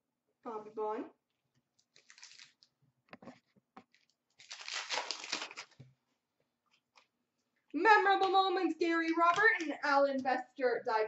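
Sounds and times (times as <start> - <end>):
wrapper crinkling: 1.8 - 2.8, 3.9 - 5.8
wrapper tearing open: 1.8 - 2.8, 3.9 - 5.8.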